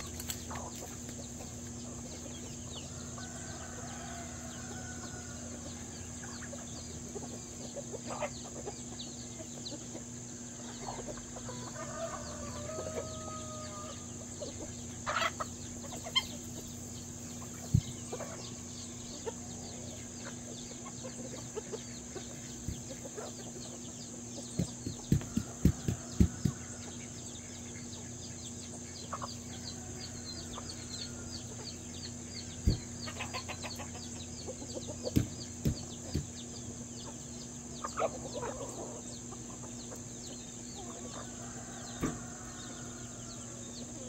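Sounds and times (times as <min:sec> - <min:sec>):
chickens clucking: 0:00.0 - 0:44.0
pecking ticks: 0:34.6 - 0:36.4.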